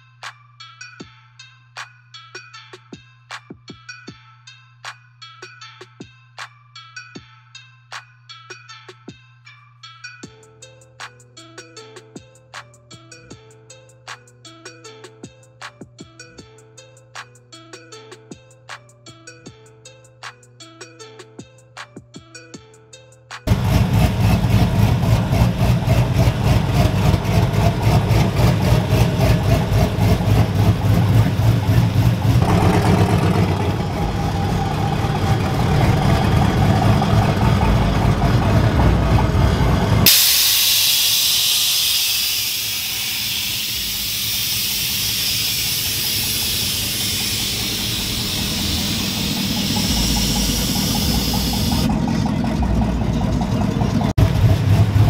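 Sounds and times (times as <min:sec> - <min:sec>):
pickup truck engines idling: 0:23.5 - 0:55.0
loud air hiss: 0:40.0 - 0:51.9.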